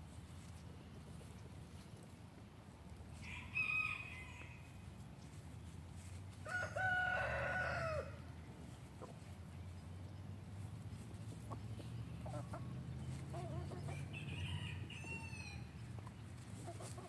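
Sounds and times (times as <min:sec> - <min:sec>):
rooster crowing: 0:03.2 - 0:04.6, 0:06.4 - 0:08.2, 0:14.0 - 0:15.7.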